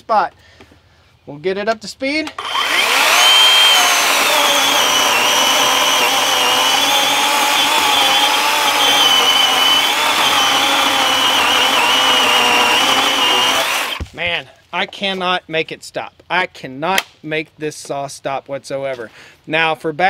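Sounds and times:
chainsaw cutting through log: 0:02.4 - 0:14.0.

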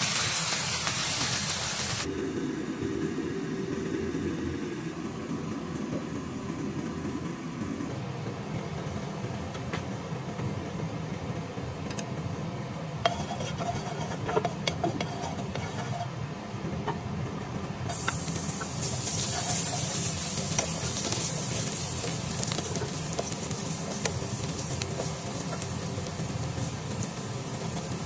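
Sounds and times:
dense sizzle: 0:00.0 - 0:02.1, 0:17.9 - 0:28.0
ginger frying in oil: 0:00.0 - 0:02.1, 0:17.9 - 0:28.0
steady low hum: 0:02.0 - 0:28.0
spatula tapping and scraping: 0:13.0 - 0:16.2, 0:17.9 - 0:28.0.

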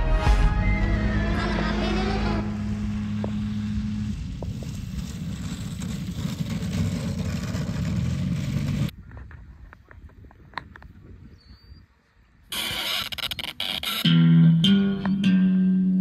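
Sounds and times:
model airplane engine drone: 0:01.3 - 0:08.9.

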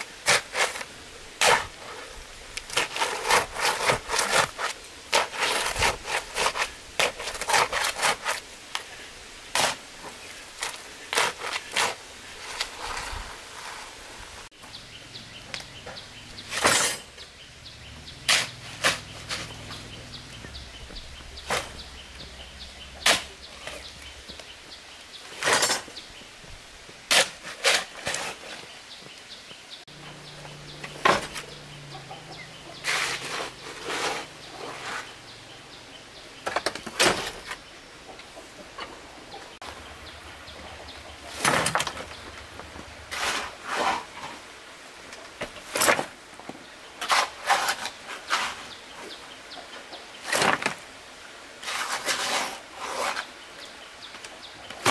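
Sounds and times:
metal shovel scraping wet concrete: 0:00.2 - 0:02.0, 0:02.7 - 0:08.4, 0:16.4 - 0:17.2, 0:18.1 - 0:20.6, 0:23.0 - 0:24.1, 0:25.3 - 0:25.9, 0:27.1 - 0:28.5, 0:32.8 - 0:35.2, 0:43.0 - 0:44.4, 0:47.0 - 0:48.8, 0:51.6 - 0:53.3.

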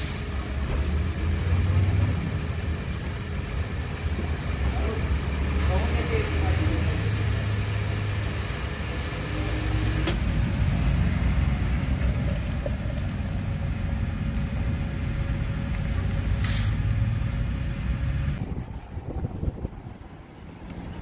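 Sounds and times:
fuel foaming: 0:00.0 - 0:18.6
steady low hum: 0:02.2 - 0:18.7
fuel pumping through nozzle: 0:10.0 - 0:18.5
short hiss: 0:16.3 - 0:16.8.

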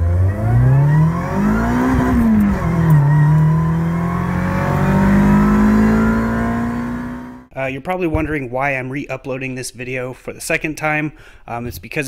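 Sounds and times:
car engine at full throttle: 0:00.0 - 0:07.5.

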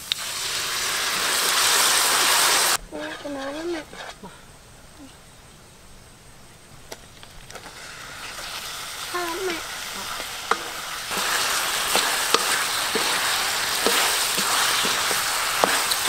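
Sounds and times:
meat sizzling in a wok: 0:00.0 - 0:03.1, 0:07.0 - 0:16.0
wooden spatula scraping a pan: 0:01.1 - 0:04.5, 0:07.5 - 0:16.0.

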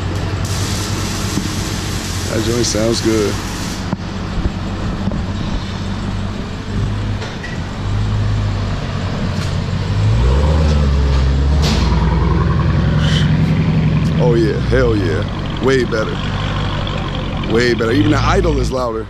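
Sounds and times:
car engine exhaust rumble: 0:00.0 - 0:19.0.

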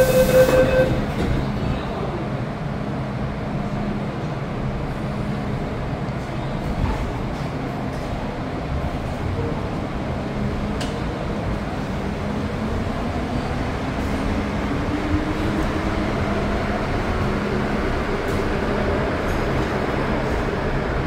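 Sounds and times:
train wheels rumbling on rail: 0:00.0 - 0:21.0.

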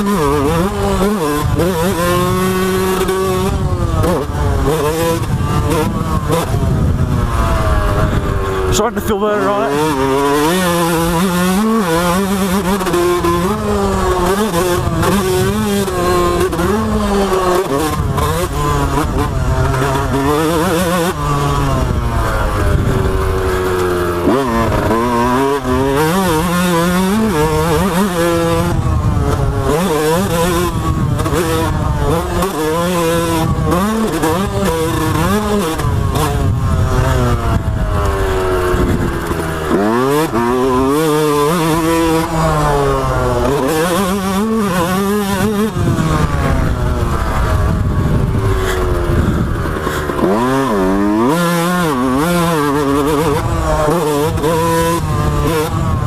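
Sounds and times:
dirt bike engine revving: 0:00.0 - 0:56.0
wind on microphone: 0:00.4 - 0:09.0, 0:13.2 - 0:26.0, 0:27.0 - 0:56.0.

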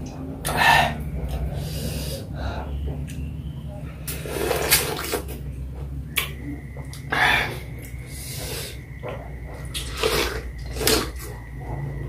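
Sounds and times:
sucking juice: 0:04.0 - 0:05.4, 0:09.6 - 0:11.3.

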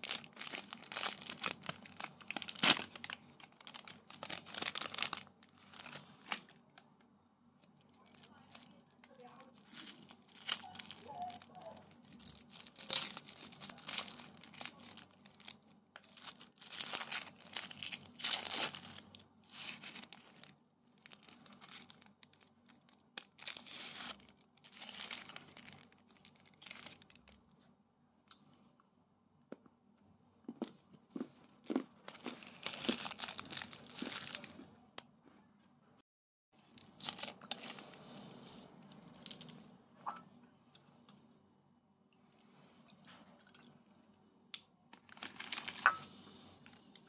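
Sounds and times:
plastic wrapper crinkling and tearing: 0:00.0 - 0:27.6, 0:31.4 - 0:34.7, 0:36.6 - 0:38.0, 0:44.9 - 0:47.0.

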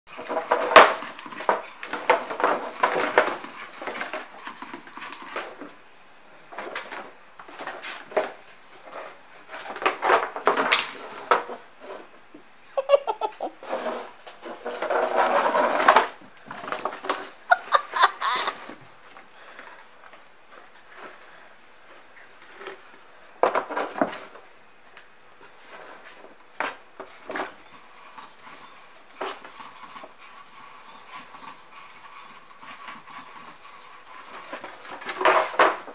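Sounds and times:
cardboard box scraping on tile floor: 0:13.6 - 0:17.4.

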